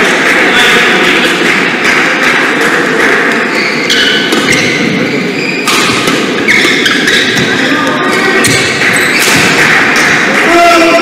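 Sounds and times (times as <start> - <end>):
racket hitting shuttlecock: 1.3 - 10.5
shoe squeaks on court floor: 3.5 - 7.7, 8.4 - 10.2.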